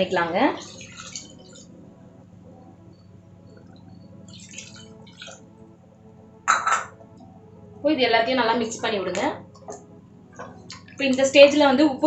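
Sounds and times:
water pouring into curry: 0.6s - 1.6s.

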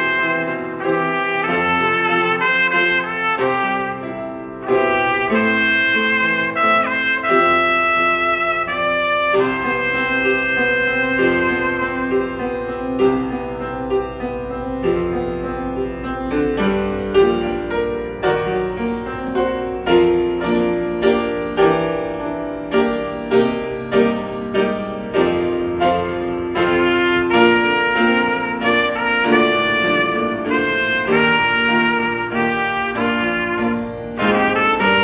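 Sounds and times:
trumpet: 0.0s - 14.2s, 19.3s - 35.0s
piano chords: 0.0s - 35.0s.

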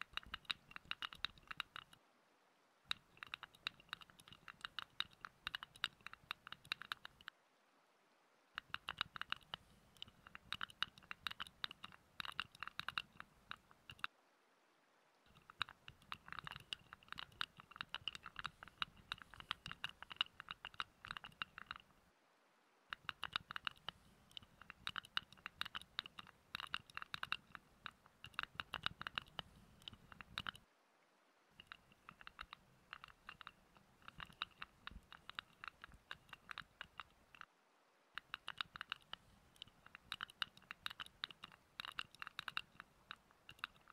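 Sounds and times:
hands scratching and rubbing: 15.3s - 22.0s, 22.9s - 30.6s, 31.6s - 37.4s.

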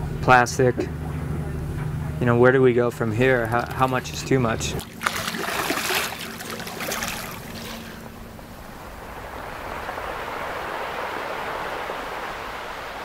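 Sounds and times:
low steady hum: 0.0s - 13.0s
water splashing and lapping: 3.2s - 13.0s
surf-like rushing noise: 3.6s - 13.0s.

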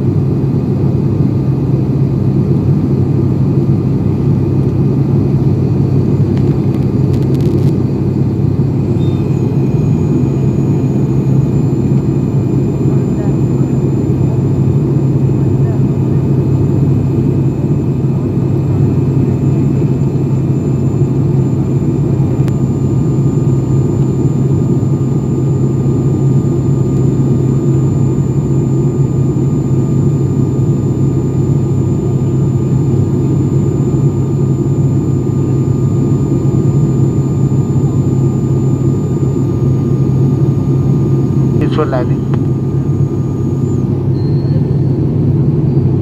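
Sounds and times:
turboprop engines droning: 0.0s - 46.0s
thin steady high tone: 42.9s - 45.1s.

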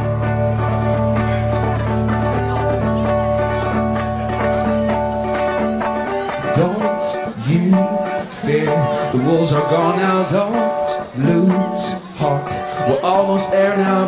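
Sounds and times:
acoustic guitar: 0.0s - 14.0s
man singing: 5.6s - 14.0s.

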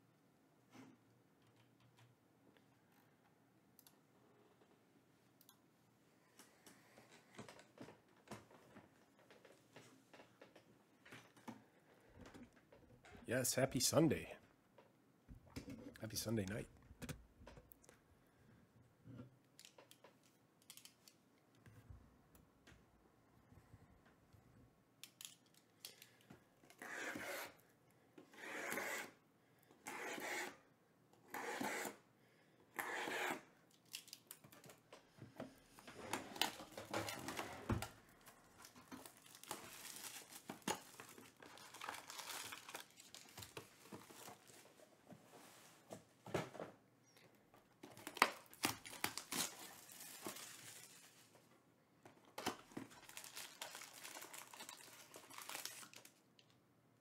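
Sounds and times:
plastic wrap crinkling and tearing: 38.5s - 44.6s, 47.9s - 51.4s, 52.5s - 56.2s.

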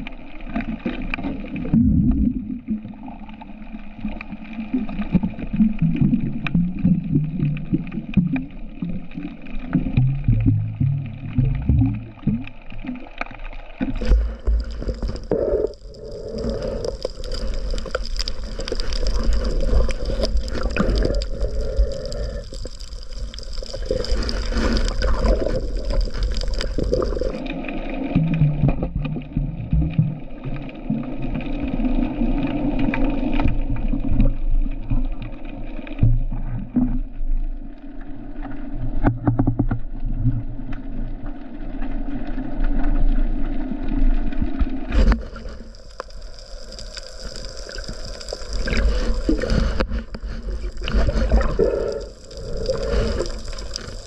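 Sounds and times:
underwater water sloshing: 0.0s - 54.0s.

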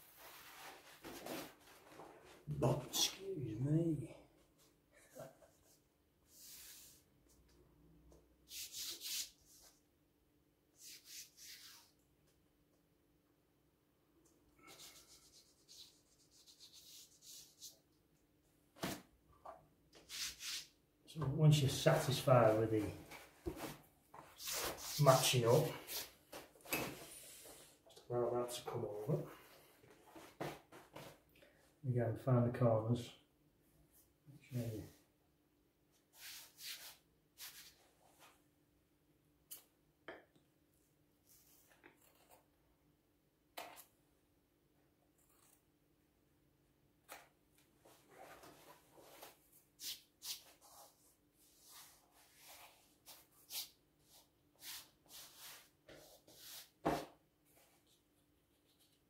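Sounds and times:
hand smoothing wallpaper: 0.0s - 1.6s, 6.3s - 7.1s, 8.5s - 9.8s, 10.8s - 12.0s, 14.6s - 17.8s, 20.1s - 20.7s, 22.4s - 26.2s, 36.1s - 38.2s, 47.9s - 56.8s
hands swishing on wallpaper: 36.2s - 37.8s, 48.2s - 56.8s.

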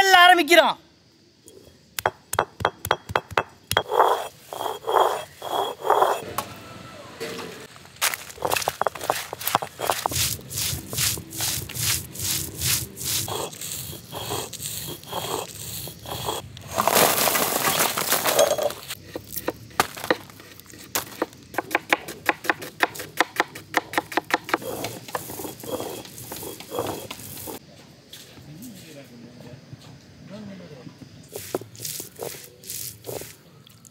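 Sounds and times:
stone roller scraping grinding slab: 2.9s - 6.2s, 7.2s - 27.6s, 31.3s - 33.4s.

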